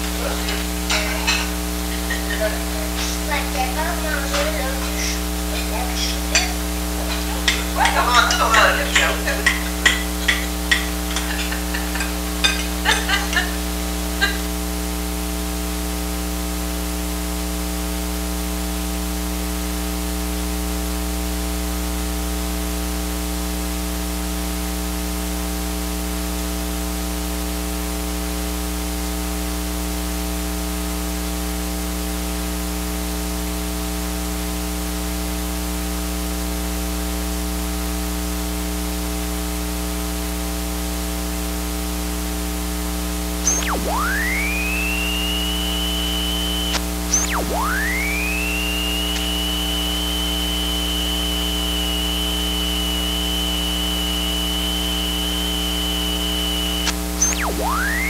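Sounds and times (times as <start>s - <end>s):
electrical mains hum: 0.0s - 19.5s, 42.0s - 58.0s.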